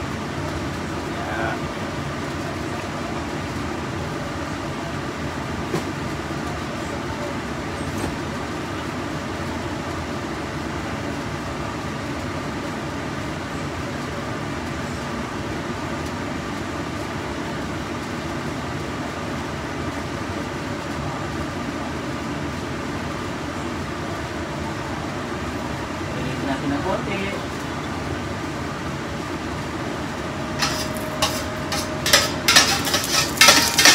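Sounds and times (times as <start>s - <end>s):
fan-like whir with faint hum: 0.0s - 33.9s.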